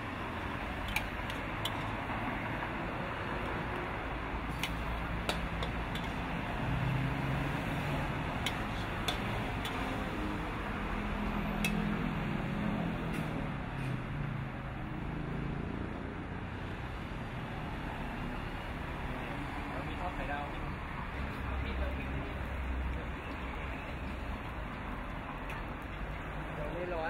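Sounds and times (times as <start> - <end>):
metal spatula clicking against wok: 0.8 - 1.9, 4.6 - 6.2, 8.4 - 9.9, 11.6 - 11.9.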